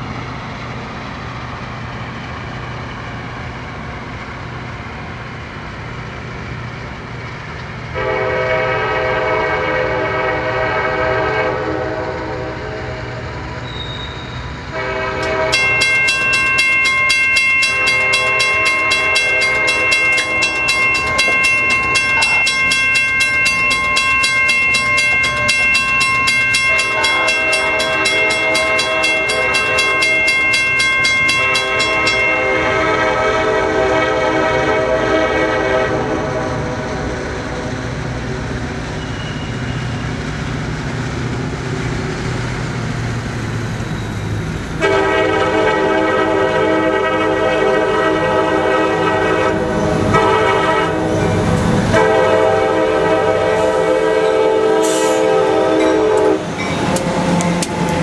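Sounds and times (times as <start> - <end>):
locomotive engine rumble: 0.0 - 58.0
train horn blasts: 7.9 - 37.6, 44.8 - 58.0
crossing bell ringing: 14.8 - 35.8, 44.8 - 58.0.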